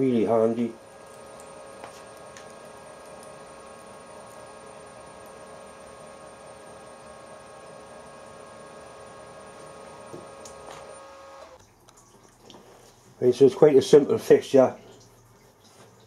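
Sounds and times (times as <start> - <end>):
milling machine hum: 0.0 - 11.6
thin high whine: 0.0 - 11.6.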